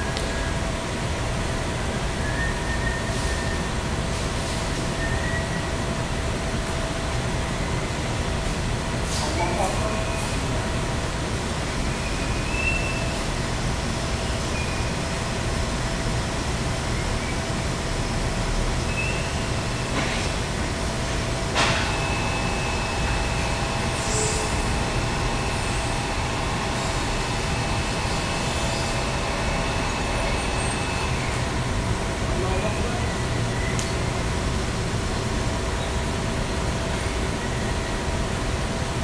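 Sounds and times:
machinery drone and hiss: 0.0s - 39.0s
thin steady whines: 9.6s - 39.0s.

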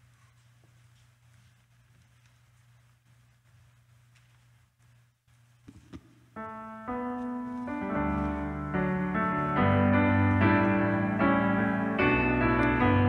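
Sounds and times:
piano chords: 6.3s - 13.0s.

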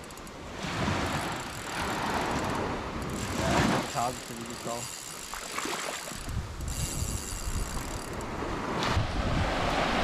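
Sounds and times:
beach surf: 0.0s - 10.0s
wind buffeting microphone: 6.1s - 10.0s.

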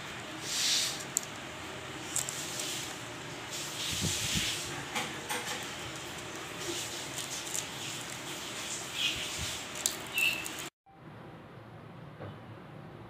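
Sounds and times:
steady hiss: 0.0s - 1.3s
sandpaper rustling and scraping: 0.4s - 1.2s, 2.0s - 4.8s, 5.5s - 10.7s.

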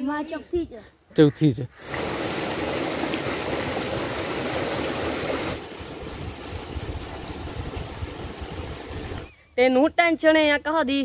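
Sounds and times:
water gushing into tank: 1.8s - 9.3s.

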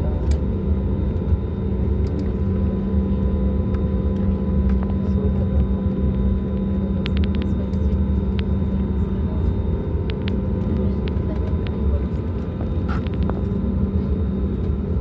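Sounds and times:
aircraft cabin rumble: 0.0s - 15.0s.

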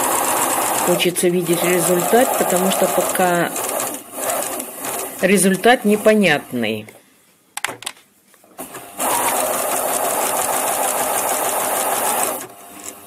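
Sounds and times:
sewing machine stitching: 0.0s - 5.2s, 9.0s - 13.0s.

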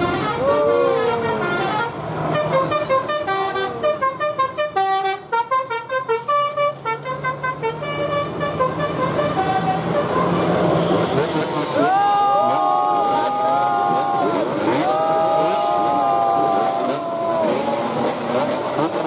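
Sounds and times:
multi-tone bus horn tune: 0.0s - 11.8s
bus engine hum: 0.0s - 19.0s.

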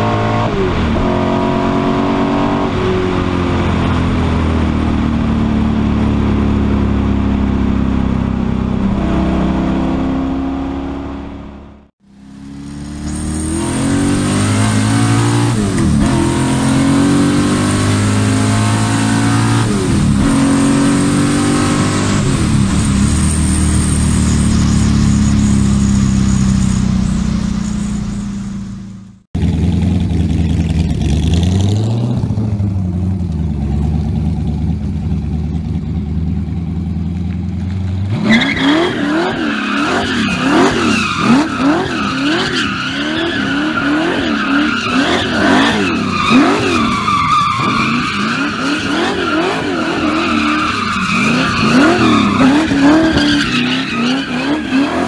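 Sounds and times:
car engine revving: 0.0s - 35.2s, 36.3s - 55.0s
tyres squealing: 38.3s - 55.0s.

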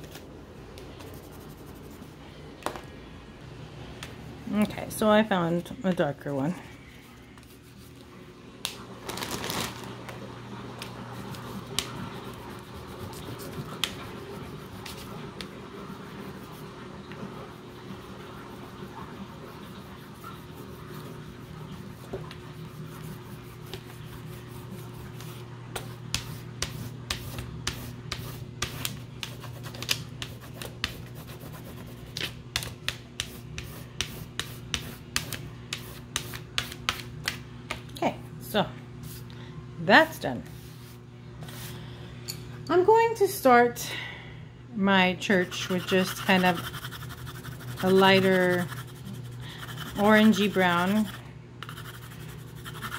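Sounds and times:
crayon scratching on paper: 21.9s - 32.3s, 45.4s - 52.9s.

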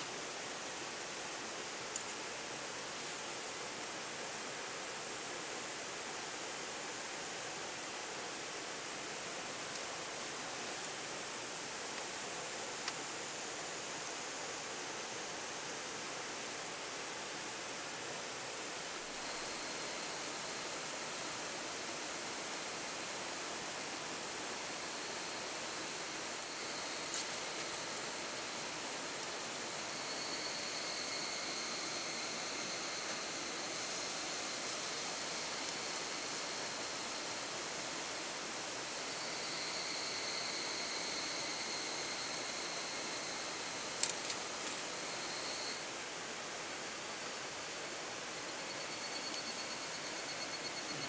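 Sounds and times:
faint high-pitched tone: 48.5s - 51.0s.

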